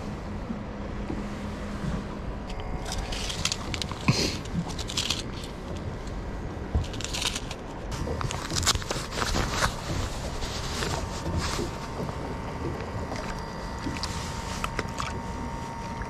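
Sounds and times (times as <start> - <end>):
low background rumble: 0.0 - 16.0
plastic packet crinkling: 2.8 - 5.6, 6.8 - 7.6, 8.2 - 11.1.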